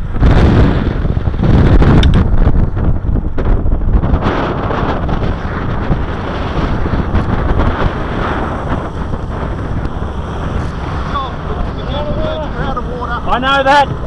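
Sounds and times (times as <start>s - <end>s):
truck engine and pump running: 0.0s - 14.0s
wind buffeting microphone: 0.0s - 14.0s
hose jet spraying water: 4.9s - 14.0s.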